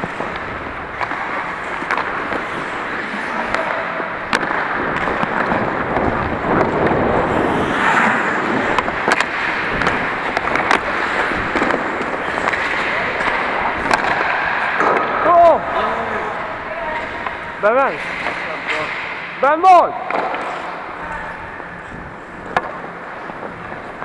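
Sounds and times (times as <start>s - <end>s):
ice skates scraping on ice: 0.0s - 14.8s
hockey sticks and puck clacking: 0.0s - 24.0s.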